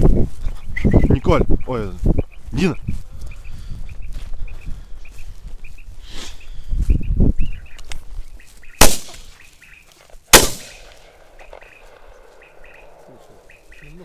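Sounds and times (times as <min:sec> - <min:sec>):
shotgun shots: 0:08.8 - 0:09.3, 0:10.3 - 0:12.3.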